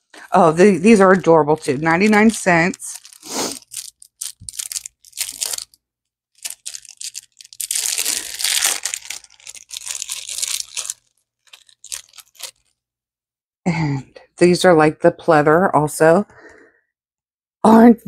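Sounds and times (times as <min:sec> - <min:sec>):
plastic packaging crinkling: 0:00.2 - 0:12.8
plastic packaging tearing: 0:00.9 - 0:05.8, 0:06.4 - 0:12.8.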